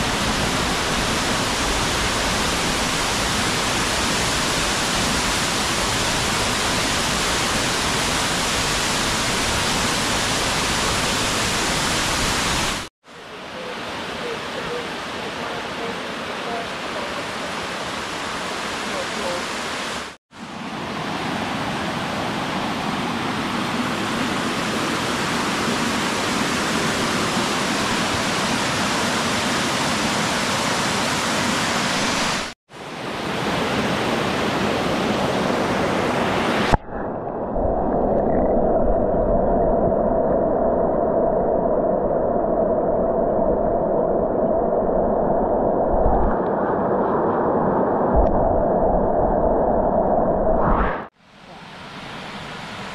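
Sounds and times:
muffled underwater water rumble: 36.6 - 51.1.

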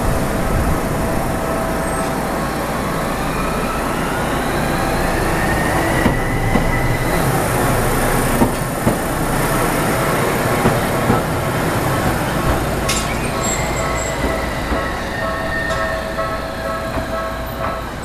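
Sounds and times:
tram motor whine: 0.0 - 18.0
wheels clacking over rail joints: 5.8 - 18.0.

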